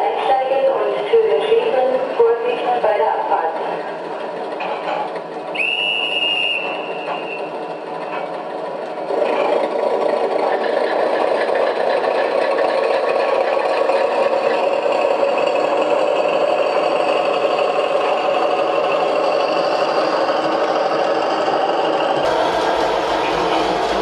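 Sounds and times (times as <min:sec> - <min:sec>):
model locomotive diesel engine: 0:00.0 - 0:24.0
short high whistle: 0:05.5 - 0:07.5.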